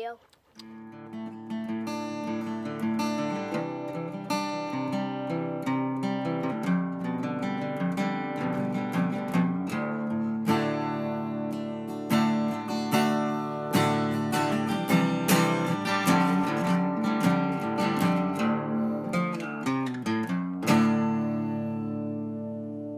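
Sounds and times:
acoustic guitar playing: 0:00.0 - 0:22.9.

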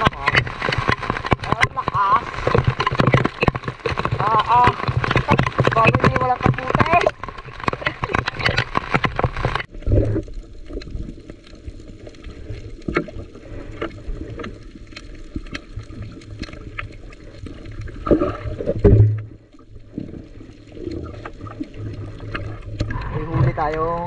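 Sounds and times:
water dripping: 0:00.0 - 0:09.7
rain pattering: 0:00.0 - 0:24.0
water splashing around boat: 0:00.0 - 0:24.0.

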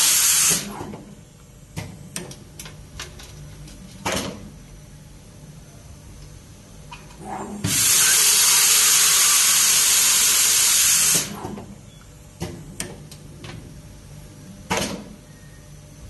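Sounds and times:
machine hissing air: 0:00.0 - 0:00.9, 0:07.2 - 0:11.6.

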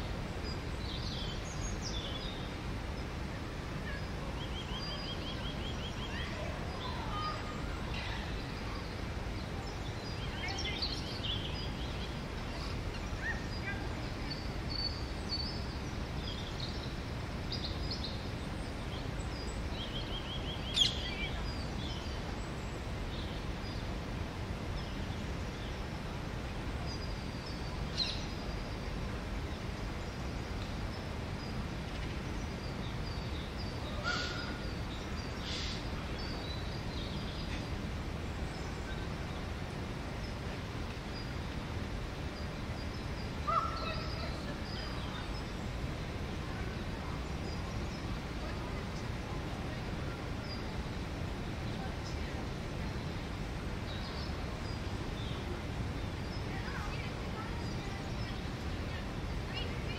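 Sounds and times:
bird chirps and calls: 0:19.8 - 0:22.2.

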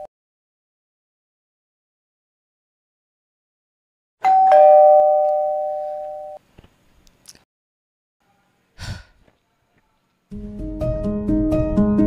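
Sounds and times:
two-tone doorbell chime: 0:04.2 - 0:06.4.

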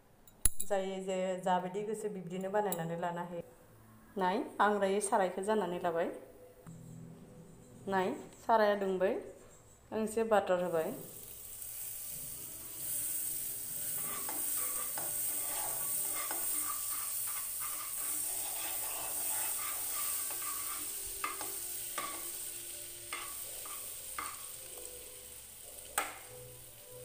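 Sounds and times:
butter sizzling in a wok: 0:10.6 - 0:27.0
metal spoon scraping and tapping pan: 0:13.9 - 0:22.4, 0:23.1 - 0:24.9.

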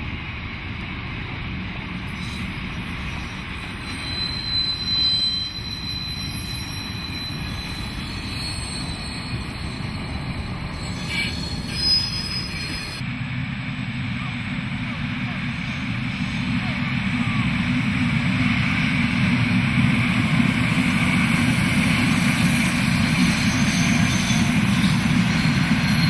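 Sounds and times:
diesel locomotive passing: 0:00.0 - 0:26.0
freight wagons rumbling on rails: 0:00.0 - 0:26.0
high wheel squeal: 0:02.1 - 0:13.0, 0:18.4 - 0:26.0.

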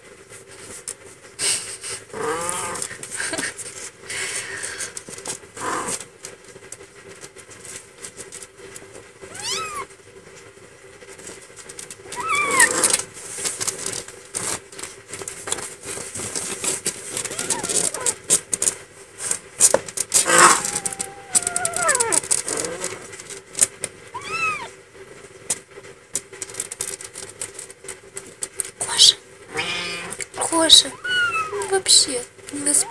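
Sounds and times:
kittens mewing: 0:02.0 - 0:03.4, 0:05.6 - 0:06.0, 0:09.3 - 0:09.9, 0:12.1 - 0:13.1, 0:17.2 - 0:18.3, 0:20.2 - 0:23.2, 0:24.1 - 0:24.7, 0:29.0 - 0:32.0, 0:32.6 - 0:32.9
rustling and scrabbling on bedding: 0:04.8 - 0:24.6.

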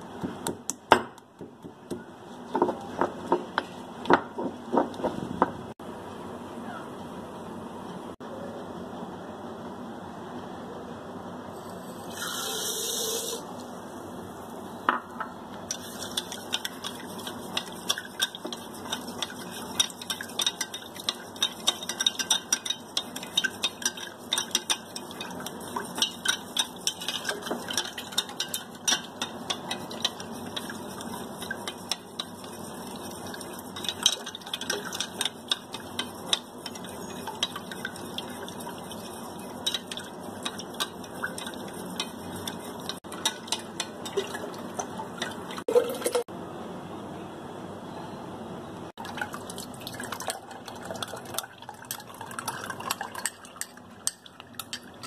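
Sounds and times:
sugar pouring into glass jug: 0:11.6 - 0:13.5, 0:49.0 - 0:53.6
spoon clinking against glass: 0:36.3 - 0:37.8.

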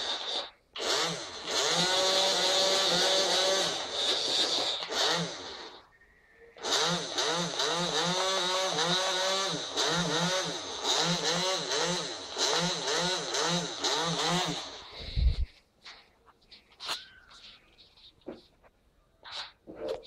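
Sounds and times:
small electric motors whining: 0:00.0 - 0:05.9, 0:06.6 - 0:15.1.

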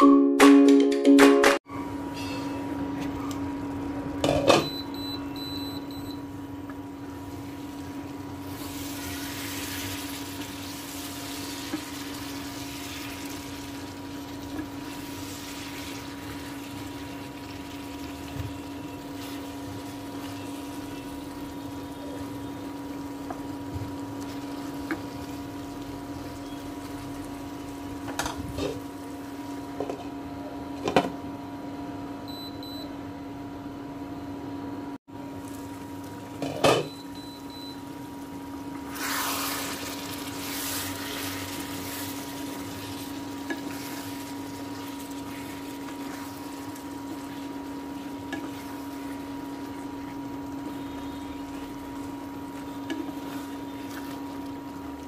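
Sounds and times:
cooktop humming: 0:01.7 - 0:55.0
spatula stirring: 0:08.4 - 0:21.0, 0:38.9 - 0:54.8.

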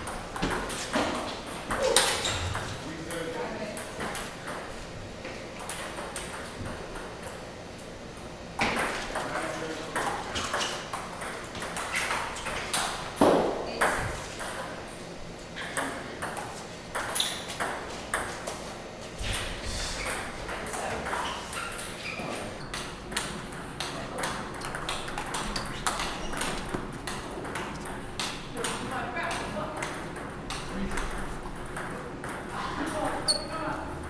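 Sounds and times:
table tennis balls clicking: 0:22.6 - 0:34.0.

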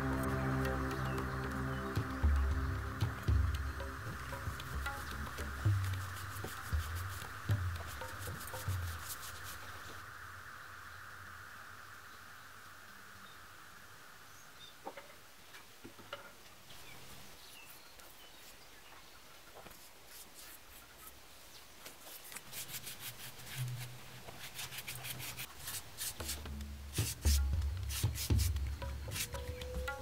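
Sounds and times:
paintbrush strokes on rough wall: 0:04.3 - 0:10.0, 0:19.5 - 0:29.9.

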